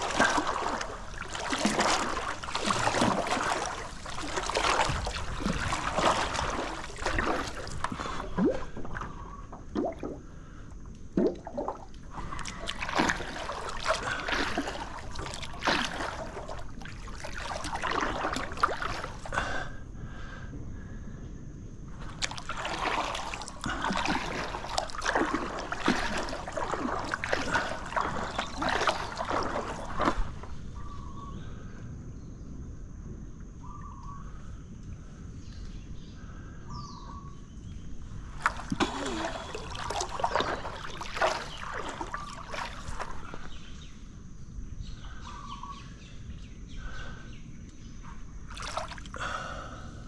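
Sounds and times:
water splashing from paddling: 0:00.0 - 0:19.6, 0:22.0 - 0:31.2, 0:38.2 - 0:43.9, 0:48.5 - 0:49.6.

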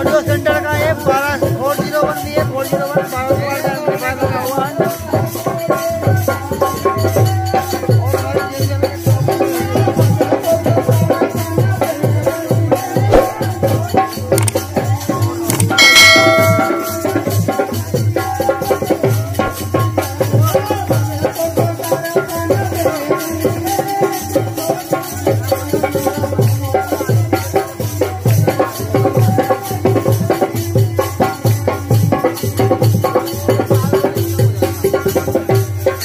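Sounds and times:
steady bass-heavy drum beat: 0:13.0 - 0:14.5.

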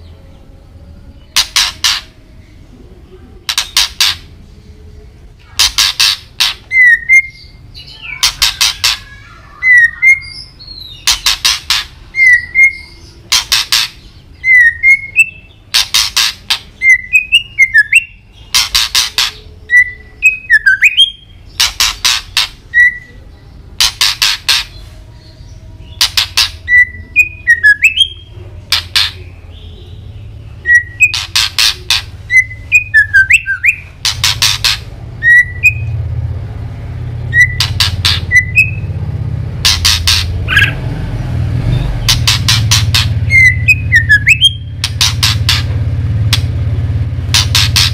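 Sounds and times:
bird harsh rattling: 0:01.4 - 0:02.1, 0:03.5 - 0:04.3, 0:05.6 - 0:06.8, 0:08.2 - 0:09.2, 0:10.9 - 0:12.0, 0:13.3 - 0:14.1, 0:15.7 - 0:17.4, 0:18.5 - 0:19.4, 0:21.5 - 0:22.7, 0:23.8 - 0:24.8, 0:31.0 - 0:32.9, 0:33.6 - 0:35.8, 0:37.3 - 0:38.7, 0:39.6 - 0:40.7, 0:42.0 - 0:45.7, 0:47.2 - 0:47.9
bird whistled notes: 0:05.7 - 0:23.2, 0:25.9 - 0:30.0, 0:30.6 - 0:36.0, 0:37.3 - 0:38.9, 0:41.7 - 0:45.6.

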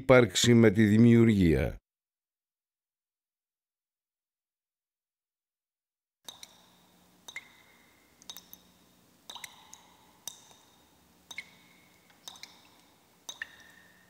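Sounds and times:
water dripping plinks: 0:06.2 - 0:14.0.

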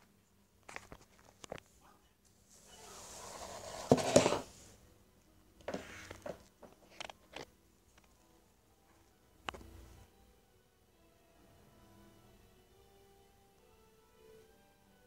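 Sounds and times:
rubbing on phone microphone: 0:02.5 - 0:04.7, 0:05.7 - 0:06.4.

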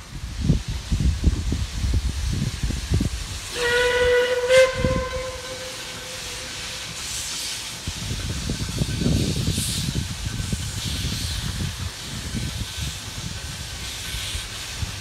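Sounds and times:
wind buffeting microphone: 0:00.0 - 0:15.0
steam whistle blast: 0:03.5 - 0:07.2.

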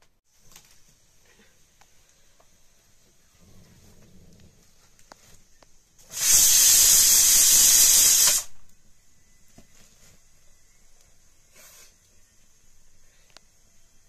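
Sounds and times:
rushing air hiss: 0:06.0 - 0:08.6, 0:11.4 - 0:12.0.

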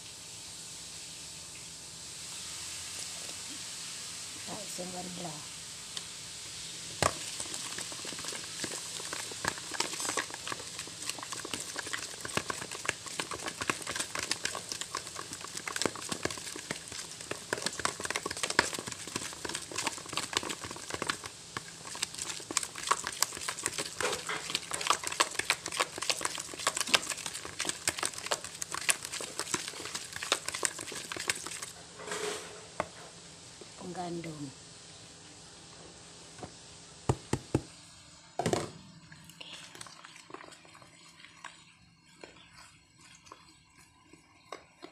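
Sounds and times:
stirring mixture in plastic bowl: 0:07.1 - 0:31.8, 0:39.5 - 0:44.9.

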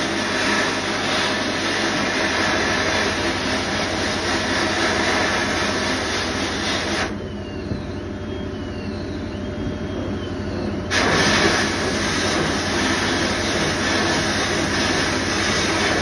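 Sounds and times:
sandblasting gun hissing: 0:00.0 - 0:07.2, 0:10.9 - 0:16.0
fast-pulsing machine hum: 0:00.0 - 0:16.0.

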